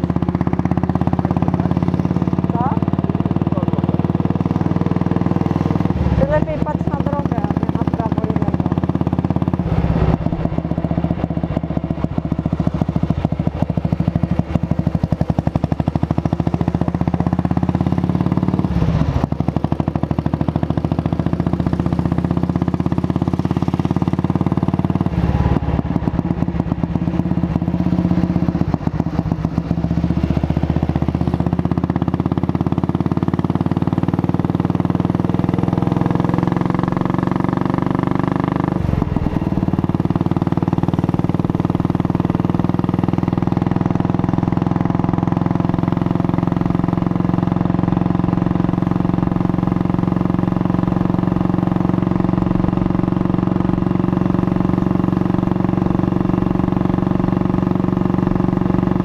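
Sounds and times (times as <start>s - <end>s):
motorcycle engine running: 0.0s - 59.0s.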